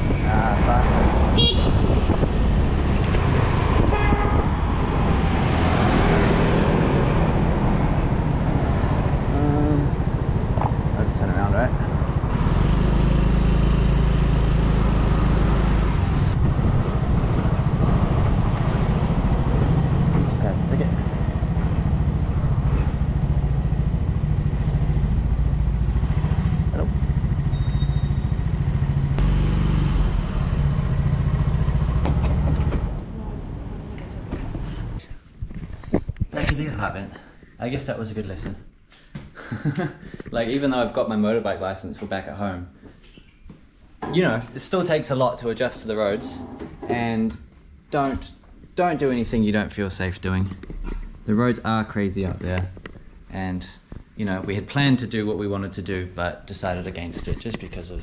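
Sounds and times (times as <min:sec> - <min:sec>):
wind noise on microphone: 0:00.0 - 0:05.6, 0:16.2 - 0:20.2, 0:35.2 - 0:36.7
street traffic: 0:00.0 - 0:41.4, 0:42.8 - 0:58.0.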